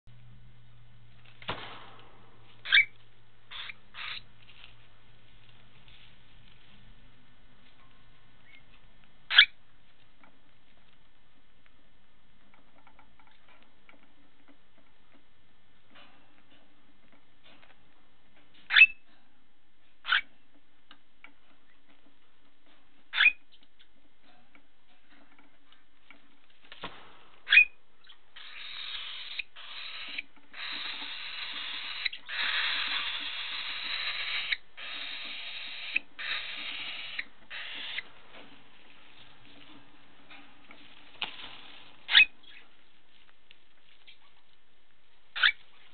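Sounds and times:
cockatiel chirping: 2.6 - 4.3, 9.3 - 9.6, 18.7 - 19.0, 20.0 - 20.3, 23.1 - 23.6, 27.5 - 38.1, 42.1 - 42.6, 45.3 - 45.6.

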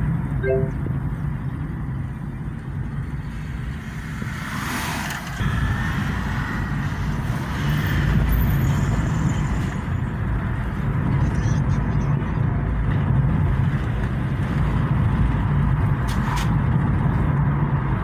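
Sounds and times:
car cabin road noise rumble: 8.8 - 18.0.

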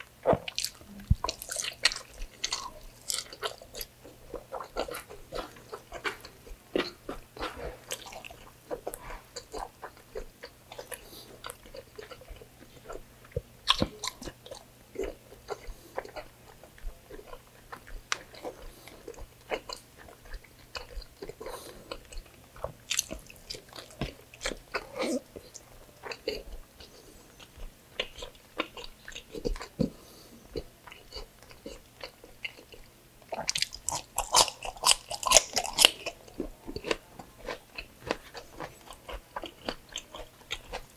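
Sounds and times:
man chewing food: 0.0 - 40.9
crisp cucumber crunches: 33.4 - 36.2.

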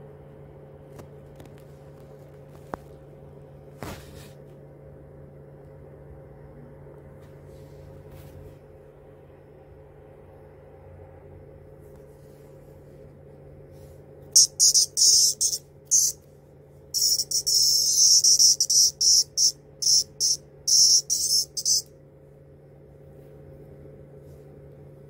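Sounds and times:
cicada buzzing: 14.4 - 16.2, 17.0 - 21.9.

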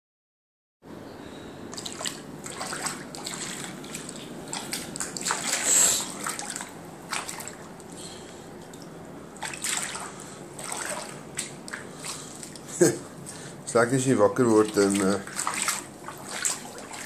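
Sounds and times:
bare feet splashing through water: 1.7 - 8.0, 8.6 - 12.8, 14.4 - 17.0.

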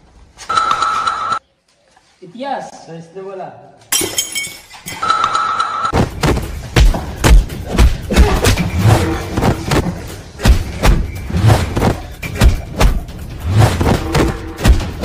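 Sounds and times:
heavy thumps: 6.0 - 15.0.

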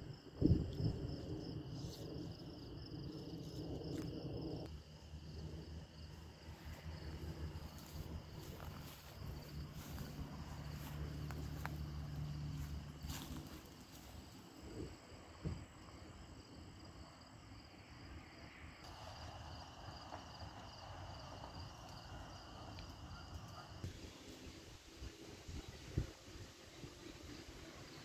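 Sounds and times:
steady low hum: 0.0 - 17.2
crickets chirring: 0.0 - 28.0.

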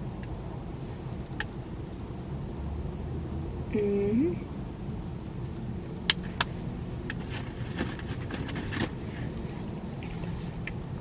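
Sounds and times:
low rumble inside a car: 0.0 - 11.0
handling rustles and taps: 6.4 - 9.0.

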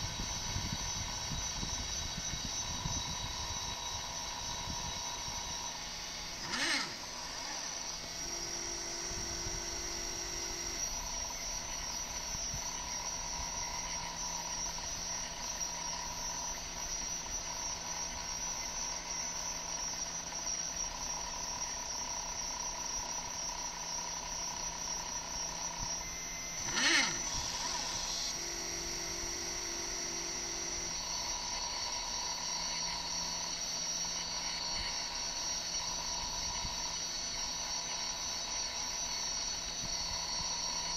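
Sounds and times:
stepper motors whining: 0.0 - 40.9
short sweeping zips: 6.4 - 7.7, 26.6 - 28.3.

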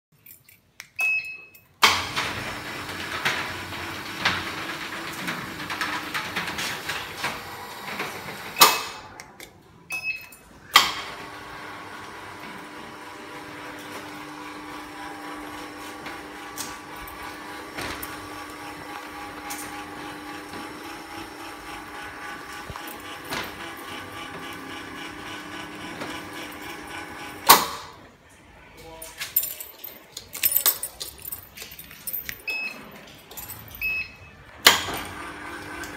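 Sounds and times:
metal roller shutter rattling: 1.9 - 8.6, 11.0 - 27.4
door motor humming: 1.9 - 8.7, 10.9 - 27.6, 34.6 - 35.9.

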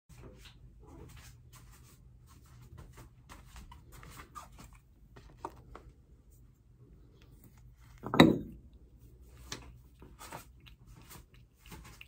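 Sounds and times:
faint scratching and rustling: 0.1 - 8.0
low steady hum: 4.6 - 12.0.

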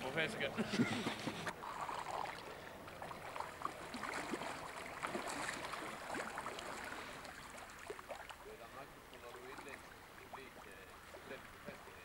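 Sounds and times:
fish splashing at surface: 1.3 - 8.4.

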